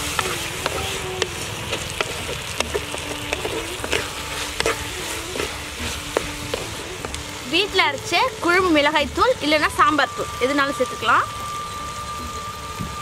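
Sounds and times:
spatula knocking and scraping pot: 0:00.0 - 0:07.3
vegetables sizzling in oil: 0:00.0 - 0:13.0.

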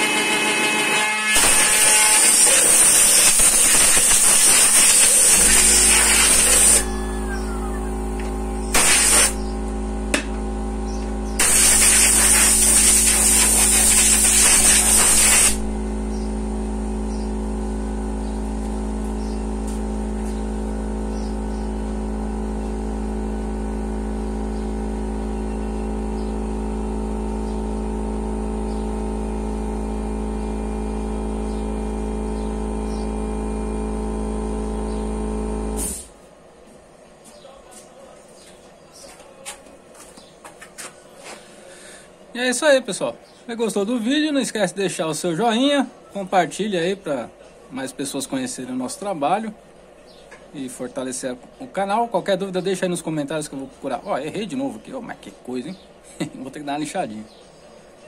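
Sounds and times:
spindle motor humming and whining: 0:00.0 - 0:36.0
loud hissing: 0:01.4 - 0:09.5, 0:11.4 - 0:16.2.

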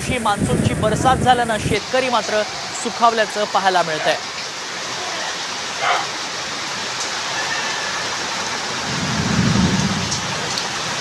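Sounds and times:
gusting wind: 0:00.0 - 0:03.6, 0:08.5 - 0:11.0
heavy rain pouring: 0:00.0 - 0:11.0.

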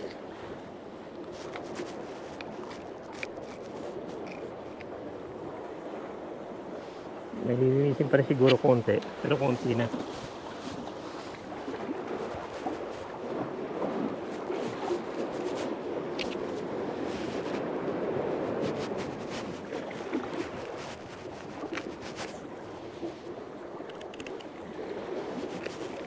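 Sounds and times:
water lapping against pier: 0:00.0 - 0:26.0.

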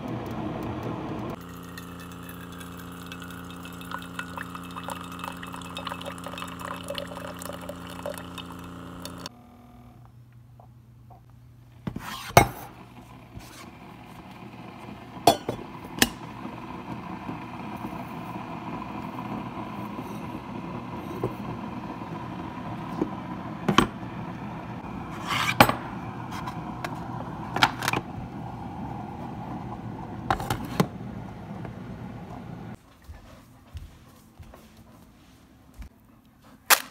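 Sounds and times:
steady hum: 0:00.0 - 0:35.9
cups and lids knocking and clinking: 0:15.3 - 0:15.6.

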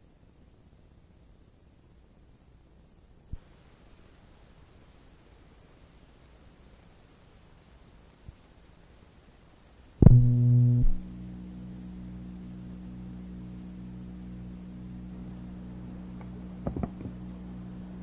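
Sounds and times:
loud low tone: 0:10.0 - 0:18.0
low drone of held tones: 0:10.0 - 0:18.0.

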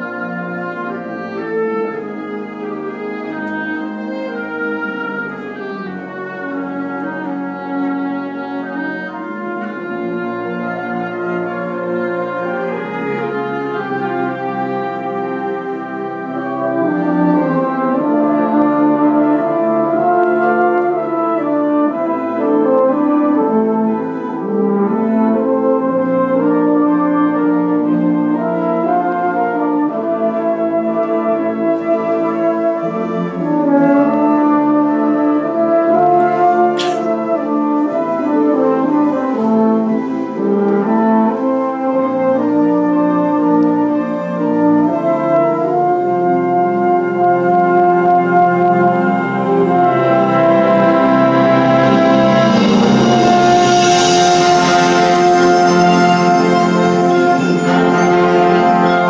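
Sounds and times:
wind band playing chords: 0:00.0 - 0:59.0
sharp band hit: 0:36.8 - 0:37.1.

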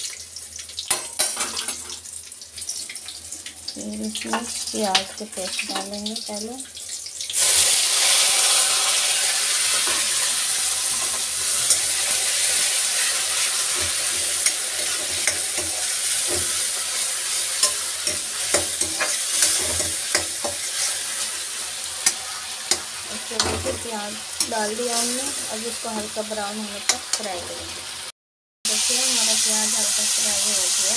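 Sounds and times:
paste sizzling in hot oil: 0:00.0 - 0:28.1, 0:28.7 - 0:30.9
spatula scraping and tapping pan: 0:10.9 - 0:12.1, 0:13.0 - 0:16.9, 0:17.6 - 0:21.4, 0:22.0 - 0:25.2, 0:26.8 - 0:27.7.

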